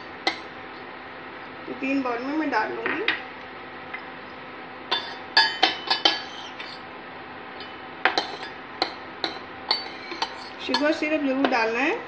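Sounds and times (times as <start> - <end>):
spoon clinking against metal pot: 4.9 - 6.8, 7.6 - 11.0.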